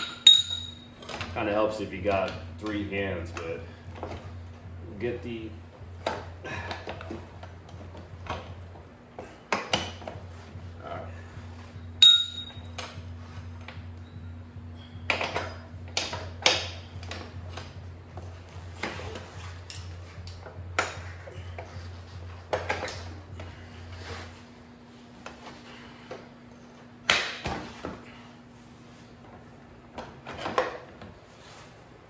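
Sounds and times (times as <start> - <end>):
metal clinks and knocks: 0.0 - 1.2, 12.0 - 13.0, 19.6 - 21.1
steady low hum: 0.0 - 32.0.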